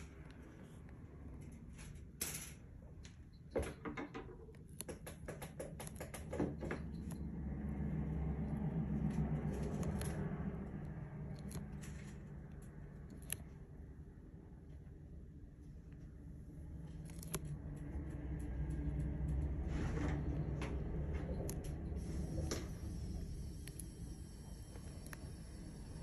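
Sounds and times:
low hum: 0:06.4 - 0:26.0
tortoise biting leaf: 0:07.4 - 0:13.7, 0:16.8 - 0:18.6, 0:21.5 - 0:26.0.

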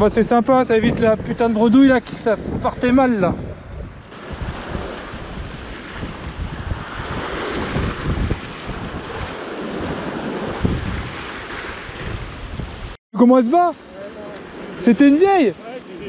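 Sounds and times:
wind buffeting microphone: 0:00.0 - 0:13.0
waves breaking on rocks: 0:04.0 - 0:13.0, 0:13.6 - 0:16.0.

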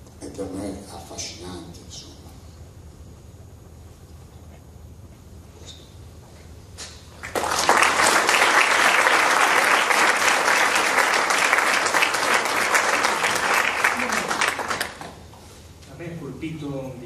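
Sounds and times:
audience applauding: 0:07.2 - 0:15.2.

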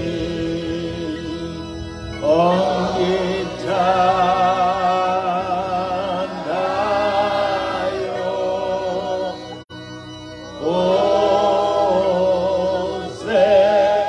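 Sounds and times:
man singing a slow hymn: 0:00.0 - 0:09.5, 0:10.6 - 0:14.0
low steady drone note: 0:00.0 - 0:14.0.

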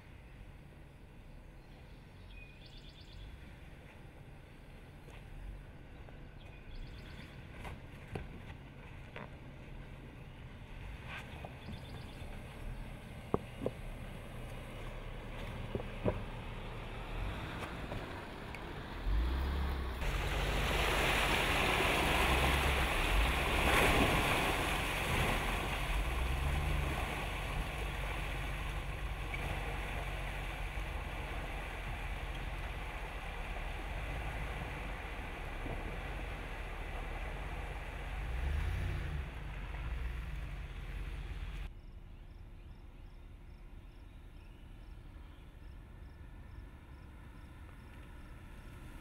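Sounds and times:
engine rumbling: 0:00.0 - 0:49.0
water splashing: 0:17.1 - 0:41.6.

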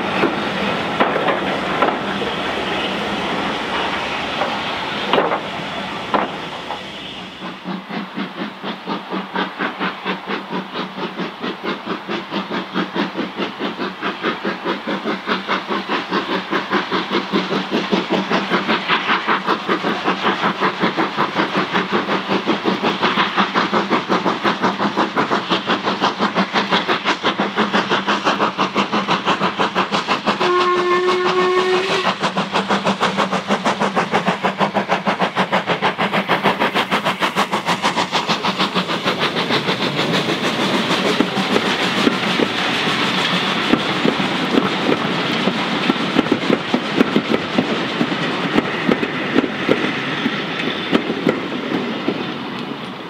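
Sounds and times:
steam locomotive exhaust beating: 0:00.0 - 0:53.0
coaches clickety-clack: 0:01.0 - 0:02.2, 0:04.4 - 0:05.5, 0:07.7 - 0:53.0
steam whistle blast: 0:30.4 - 0:32.2.

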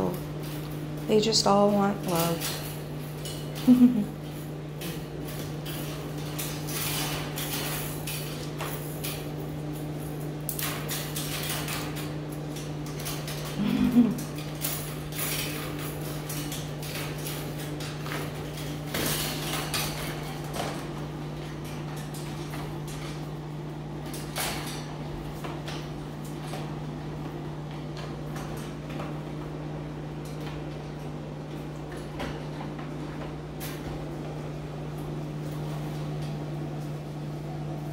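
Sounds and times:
claws and toys on tiles: 0:01.7 - 0:09.3, 0:10.5 - 0:23.2.

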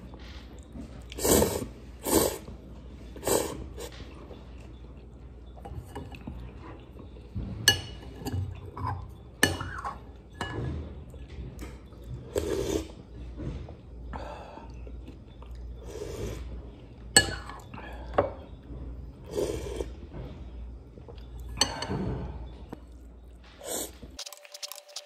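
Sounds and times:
spoon and chopsticks clinking on bowl: 0:07.7 - 0:10.7, 0:17.2 - 0:17.6.

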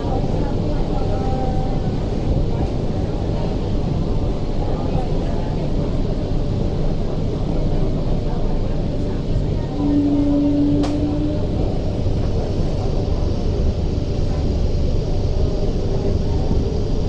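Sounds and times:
train wheels rumbling: 0:00.0 - 0:17.0
brief steady hum: 0:09.7 - 0:11.7.

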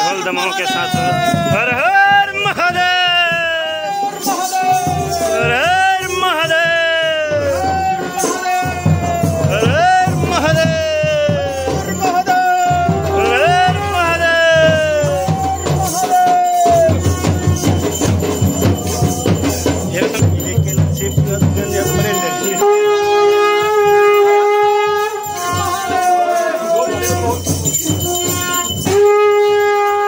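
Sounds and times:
drums playing steady rhythm: 0:00.0 - 0:30.0
horn gliding notes: 0:07.5 - 0:18.9, 0:22.0 - 0:30.0.

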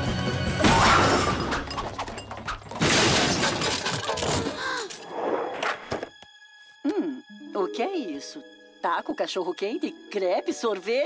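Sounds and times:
background music: 0:00.0 - 0:11.0
cartoon crashes: 0:00.6 - 0:01.6.

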